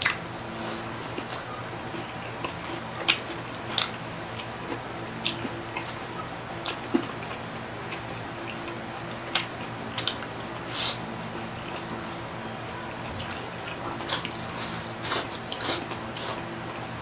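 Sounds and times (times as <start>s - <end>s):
chewing smacks and clicks: 0.0s - 0.2s, 1.0s - 10.3s, 13.2s - 16.9s
steady low hum: 0.0s - 17.0s.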